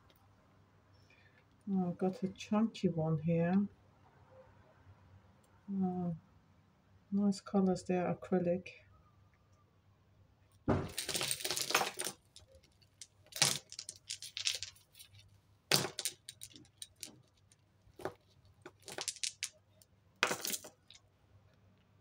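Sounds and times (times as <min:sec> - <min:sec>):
jewellery jangling and clinking: 0:10.8 - 0:19.6, 0:20.2 - 0:21.0.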